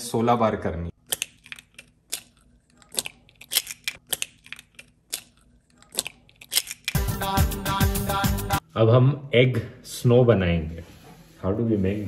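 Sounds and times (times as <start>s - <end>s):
eggshells cracking and clicking: 1.0s - 7.0s.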